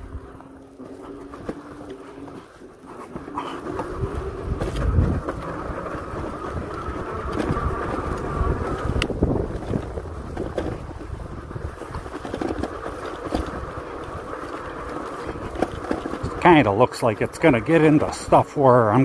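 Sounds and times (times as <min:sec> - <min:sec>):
electric motor whining: 0:00.0 - 0:19.0
wind rumble on microphone: 0:03.8 - 0:14.4.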